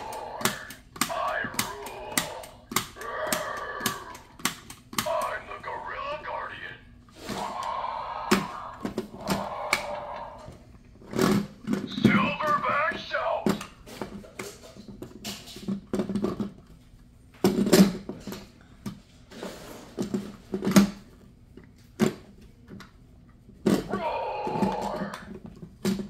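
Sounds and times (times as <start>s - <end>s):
pitched voice-like sound: 0.0s - 4.2s, 5.0s - 10.5s, 11.9s - 13.6s, 23.9s - 25.3s
plastic toy clicking and knocking: 0.0s - 5.3s.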